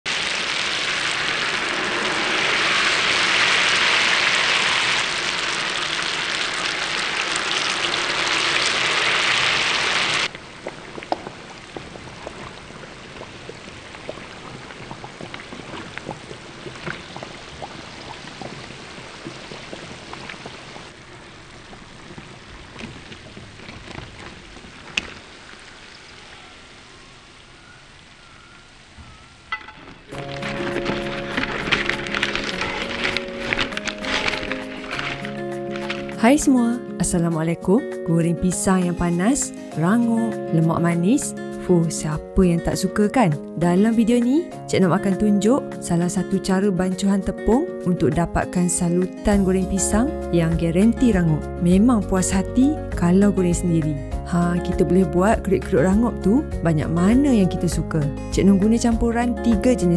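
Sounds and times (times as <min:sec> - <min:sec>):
food deep-frying in oil: 0:00.1 - 0:28.9
small crackles and pops: 0:10.2 - 0:26.6, 0:29.6 - 0:36.2.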